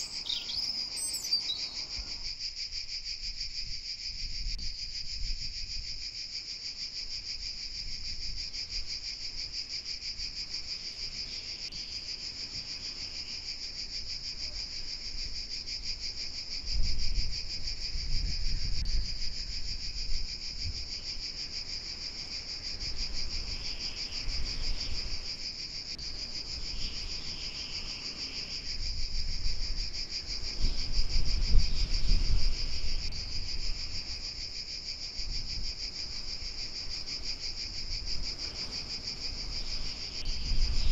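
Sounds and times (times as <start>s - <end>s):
insects chirring: 0.0s - 40.9s
wind gusts on microphone: 16.5s - 21.1s, 22.7s - 25.3s, 26.5s - 34.5s, 35.2s - 40.9s.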